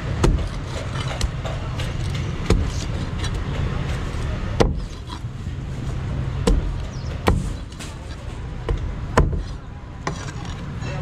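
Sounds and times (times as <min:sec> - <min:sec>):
cleaver chopping on wooden block: 0:00.0 - 0:05.3, 0:06.4 - 0:07.9, 0:08.6 - 0:10.4.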